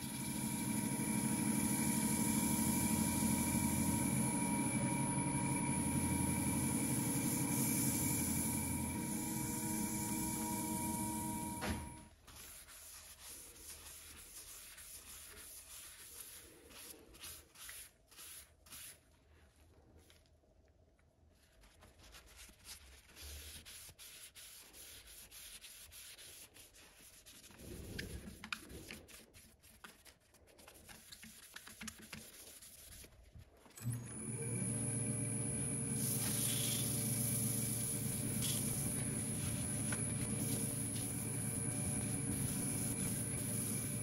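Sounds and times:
pad rubbing spinning wood: 0.1 - 13.4, 35.9 - 44.0.

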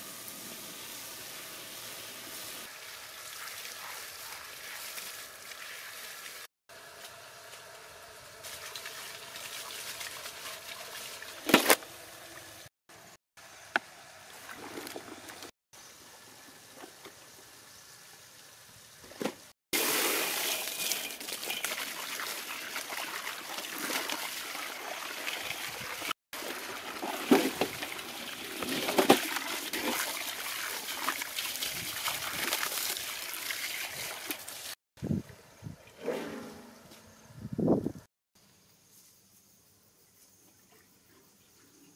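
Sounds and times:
hose water splashing into basin: 0.0 - 7.1, 8.4 - 12.6, 19.8 - 34.8.

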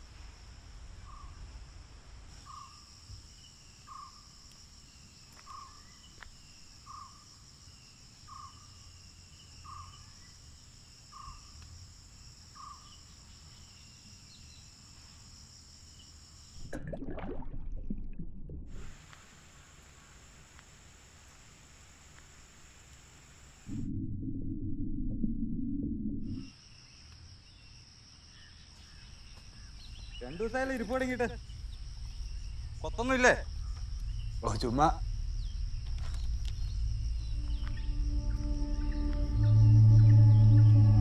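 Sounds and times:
high-pitched insect drone: 30.3 - 41.0.

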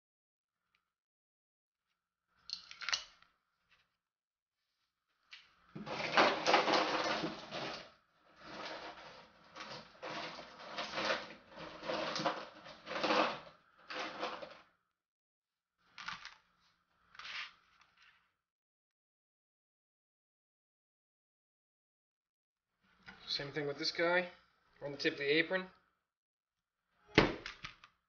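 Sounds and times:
rummaging in a container: 5.8 - 14.6.

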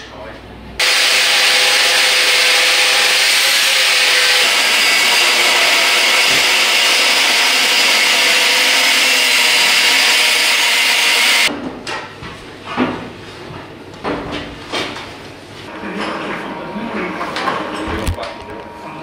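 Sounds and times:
angle grinder cutting steel: 0.8 - 11.5.

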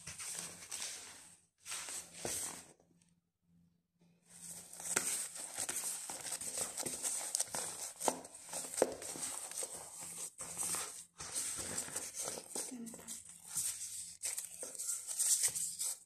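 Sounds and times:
plastic gloves crinkling: 4.6 - 16.0.

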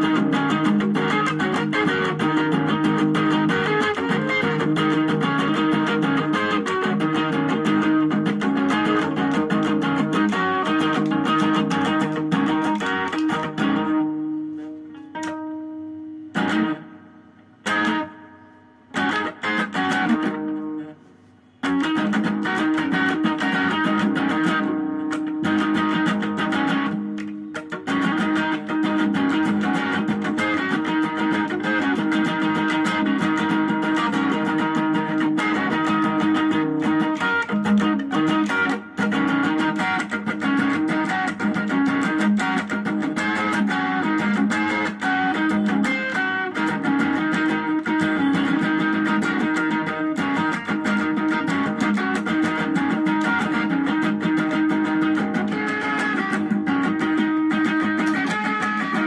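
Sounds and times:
electric guitar playing rhythm: 0.0 - 59.0.

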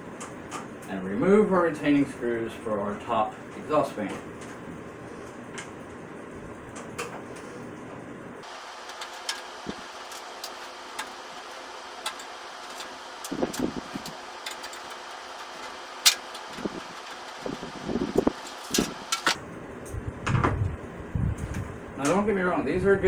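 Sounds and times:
fan and case panel rattling: 6.6 - 22.4.

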